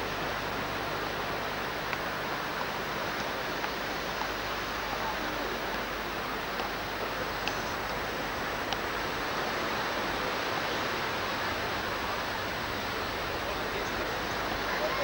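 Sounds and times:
beach ambience hiss: 0.0s - 15.0s
faint click: 7.4s - 8.0s.

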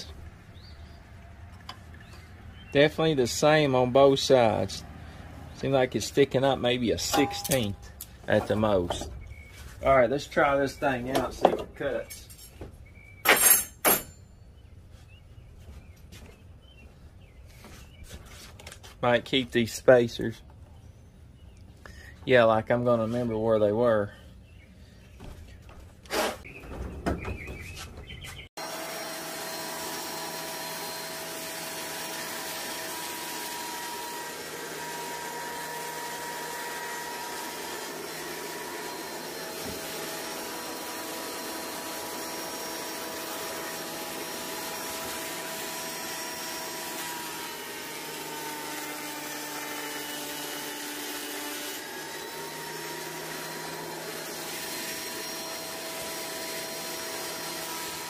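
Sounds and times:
planer running: 28.6s - 58.0s.

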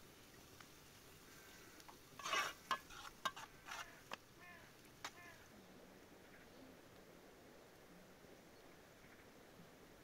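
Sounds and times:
spoon scraping in metal pot: 2.2s - 3.9s.

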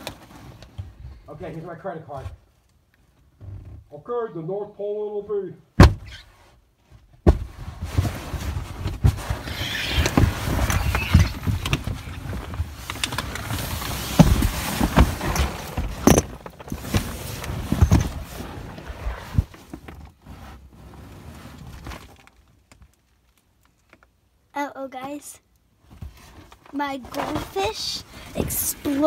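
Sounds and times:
blankets rustling against cardboard: 5.9s - 22.2s.

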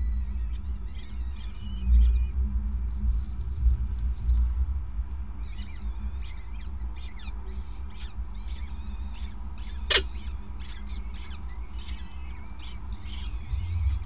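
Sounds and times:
falcon chicks cheeping: 0.0s - 2.4s, 5.3s - 14.0s
low rumble: 13.2s - 14.0s.

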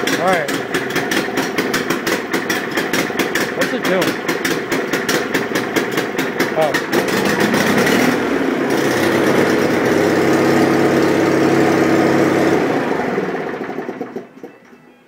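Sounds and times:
garden tractor engine running: 0.0s - 14.9s.

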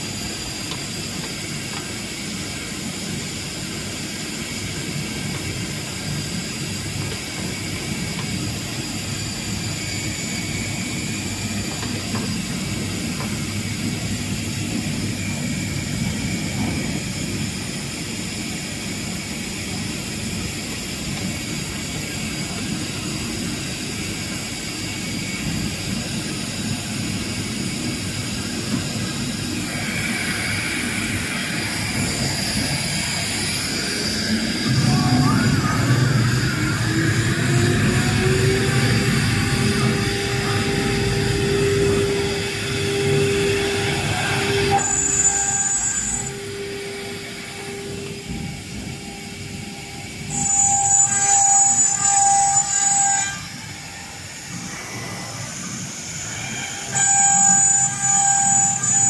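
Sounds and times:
router spindle whine: 0.0s - 59.0s
low mechanical rumble: 28.2s - 50.3s.

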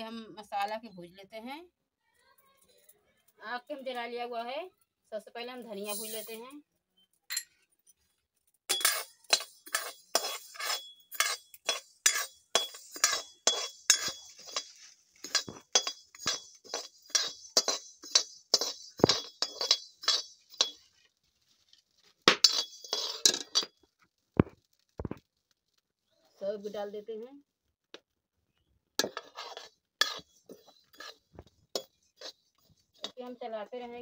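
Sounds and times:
spoon scraping seeds in pan: 5.6s - 6.4s, 8.7s - 25.2s, 29.0s - 34.0s
seeds rattling against pan: 5.6s - 6.5s, 8.3s - 25.8s, 29.0s - 34.0s.

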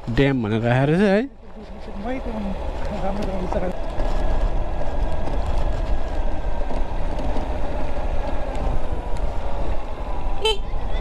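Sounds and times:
motorcycle engine and wind rumble: 1.4s - 11.0s.

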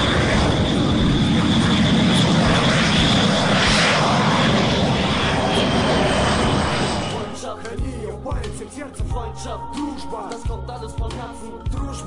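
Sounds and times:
jet engine roar with whine: 0.0s - 7.6s.

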